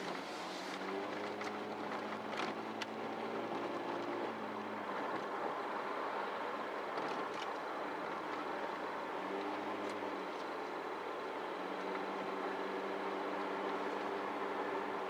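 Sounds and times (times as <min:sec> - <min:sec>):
car engine hum: 0:00.0 - 0:15.0
tyre and road noise: 0:00.0 - 0:15.0.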